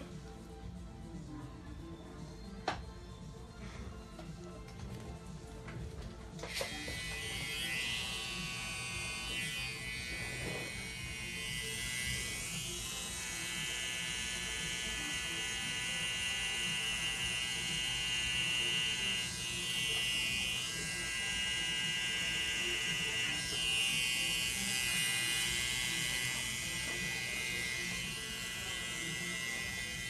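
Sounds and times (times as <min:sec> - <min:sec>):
tattoo machine buzzing: 0:06.4 - 0:30.0.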